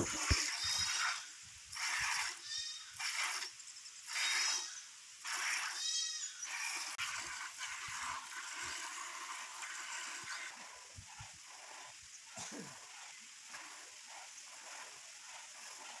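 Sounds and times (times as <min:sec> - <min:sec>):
milk squirting into bucket: 0:00.0 - 0:02.4, 0:03.0 - 0:04.6, 0:05.2 - 0:05.8
lamb bleating: 0:02.4 - 0:02.9, 0:05.7 - 0:06.4.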